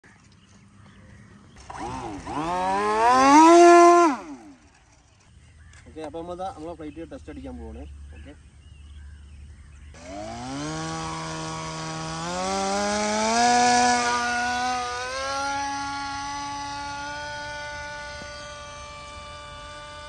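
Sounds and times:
electric motor propeller whine: 0:01.2 - 0:05.2, 0:09.9 - 0:20.0.

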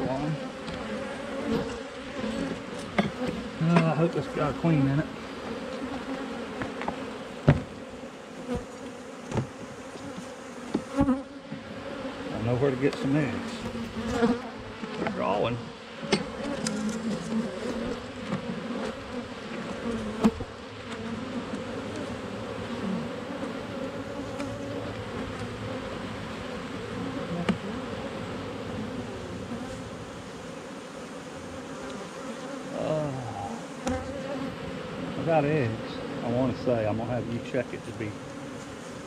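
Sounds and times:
honeybees buzzing: 0:00.0 - 0:39.0
sharp knocks: 0:07.4 - 0:07.7.

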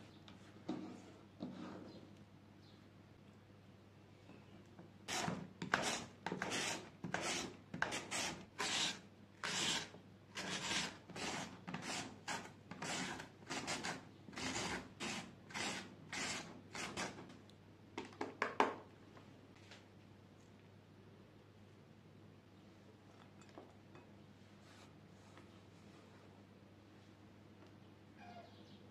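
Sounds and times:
carrot scraping on slicer: 0:05.1 - 0:17.2.

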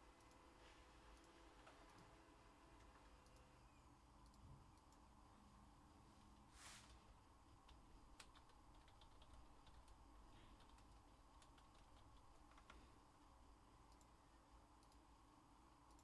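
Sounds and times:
computer keyboard typing: 0:07.5 - 0:13.1.

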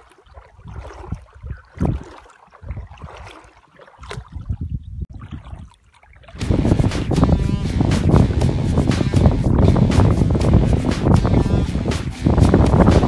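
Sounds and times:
shallow water lapping: 0:00.0 - 0:06.4
wind gusts on microphone: 0:00.6 - 0:03.2, 0:04.2 - 0:05.7, 0:06.4 - 0:13.0
loud music: 0:06.4 - 0:13.0.

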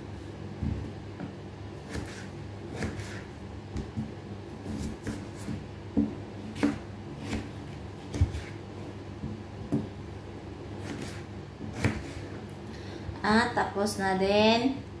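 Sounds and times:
knife cutting raw potato: 0:01.8 - 0:08.9, 0:10.8 - 0:12.4.

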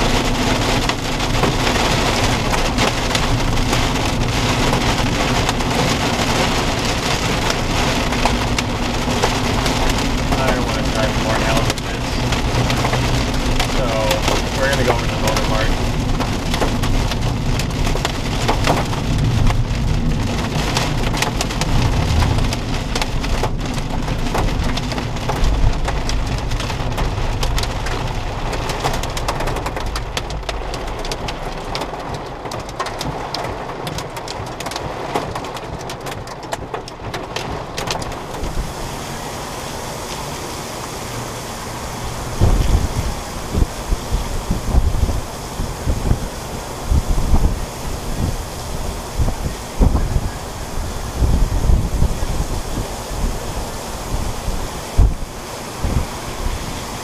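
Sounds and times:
wind buffeting microphone: 0:00.0 - 0:26.4, 0:38.1 - 0:57.0
heavy rain on car roof: 0:00.0 - 0:57.0.

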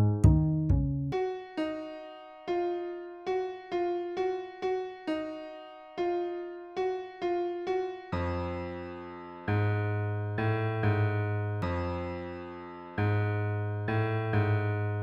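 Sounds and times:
deep bass notes: 0:00.0 - 0:01.2
keyboard single notes: 0:00.0 - 0:02.1.

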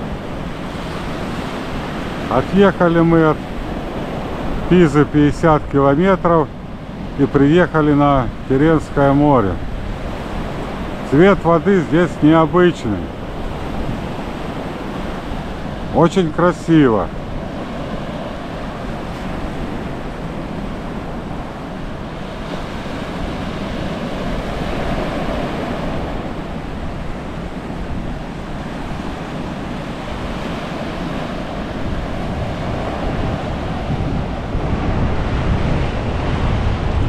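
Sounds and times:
wind buffeting microphone: 0:00.0 - 0:16.0, 0:17.0 - 0:37.0
surf breaking on beach: 0:00.0 - 0:37.0.

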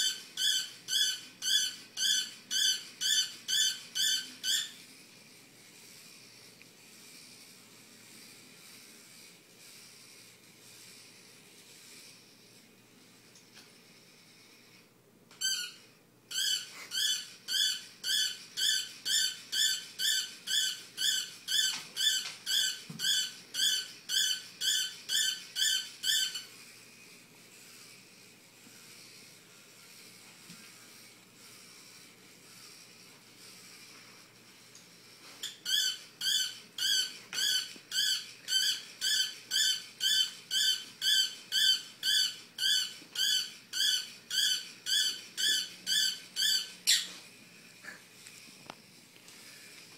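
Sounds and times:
robot toy dog yipping: 0:00.0 - 0:04.8, 0:15.4 - 0:26.6, 0:35.4 - 0:47.1.

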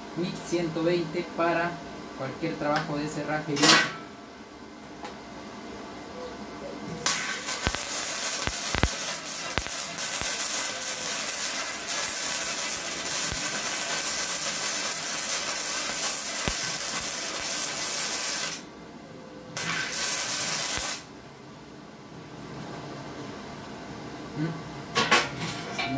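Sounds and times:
welding arc crackling and popping: 0:07.0 - 0:18.7, 0:19.6 - 0:21.1.

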